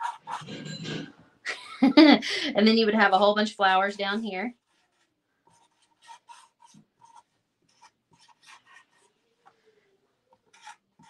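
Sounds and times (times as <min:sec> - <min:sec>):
marker scratching on paper: 0:00.0 - 0:00.6, 0:03.7 - 0:09.6, 0:10.3 - 0:11.0.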